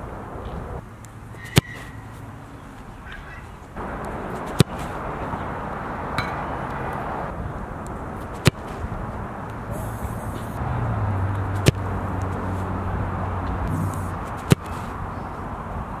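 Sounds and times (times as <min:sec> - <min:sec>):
outdoor background noise: 0:00.0 - 0:16.0.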